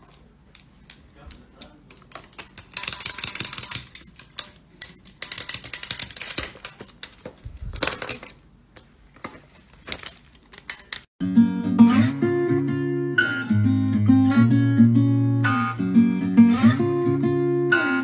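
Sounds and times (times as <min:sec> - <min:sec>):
high squeak: 0:04.0 - 0:04.6.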